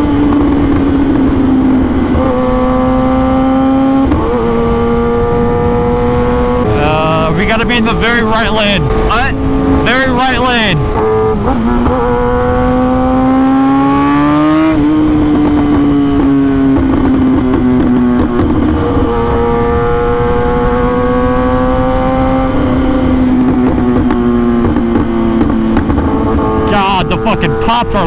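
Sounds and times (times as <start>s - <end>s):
wind on microphone: 0.0s - 10.0s
motorcycle engine: 0.0s - 28.0s.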